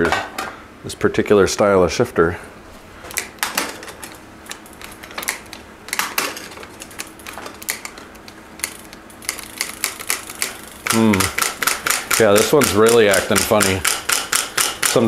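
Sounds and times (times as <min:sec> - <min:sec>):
bike shifter ratchet clicks: 0:04.5 - 0:15.0.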